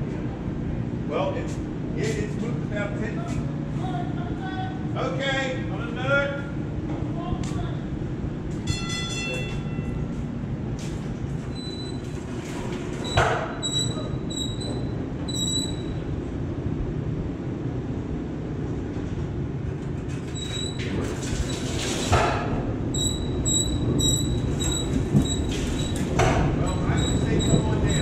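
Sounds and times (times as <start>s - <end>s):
streetcar motors and wheels rumbling: 0.0s - 28.0s
high squeaks: 13.0s - 16.0s, 22.9s - 28.0s.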